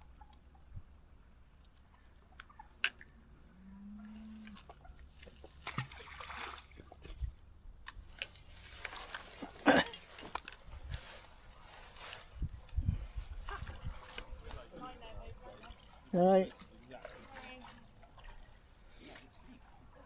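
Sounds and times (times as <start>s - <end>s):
fishing tackle clicks and rustles: 6.7s - 15.0s.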